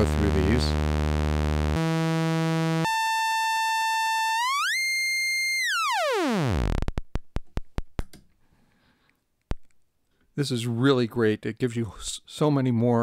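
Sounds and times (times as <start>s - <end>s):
buzzy synthesizer tone: 0.0s - 7.2s.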